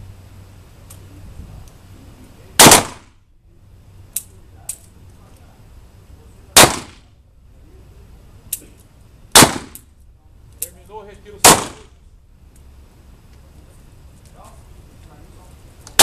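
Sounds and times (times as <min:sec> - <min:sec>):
revolver shots with echo: 0:06.6 - 0:07.1.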